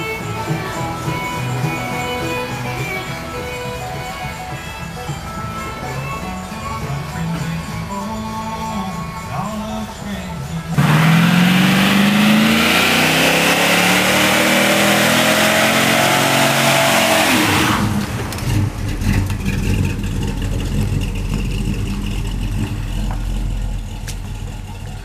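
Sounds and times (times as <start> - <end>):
spinning tyres screeching: 10.7 - 25.0
car engine revving: 10.8 - 25.0.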